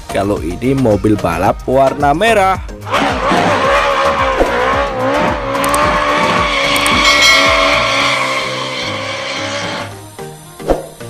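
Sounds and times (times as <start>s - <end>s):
tyres squealing: 2.8s - 10.0s
car engine revving: 2.8s - 10.1s.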